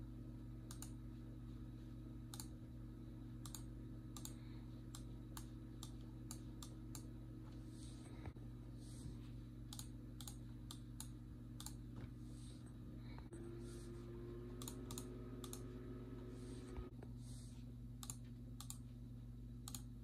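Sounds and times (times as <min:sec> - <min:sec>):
low electrical hum: 0:00.0 - 0:20.0
computer mouse clicking: 0:00.7 - 0:01.0, 0:02.3 - 0:02.6, 0:03.4 - 0:07.1, 0:09.7 - 0:11.8, 0:14.6 - 0:15.7, 0:18.0 - 0:18.8, 0:19.6 - 0:19.9.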